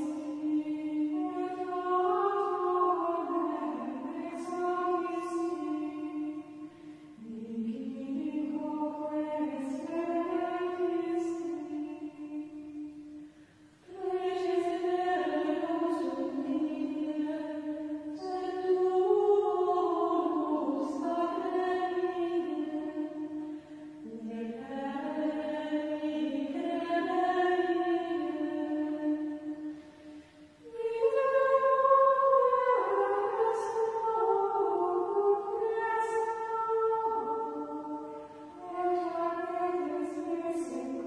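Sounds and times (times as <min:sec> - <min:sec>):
choir chanting in unison: 0:30.6 - 0:41.0.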